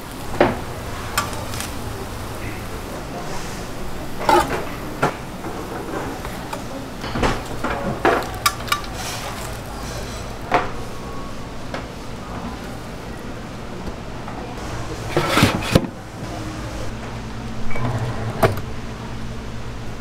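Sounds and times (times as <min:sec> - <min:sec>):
pan scraping and clanking: 0:00.9 - 0:01.8, 0:03.3 - 0:06.5, 0:07.1 - 0:10.4, 0:14.9 - 0:16.0
metal pans clinking: 0:01.0 - 0:01.8, 0:04.2 - 0:10.4, 0:15.1 - 0:15.9.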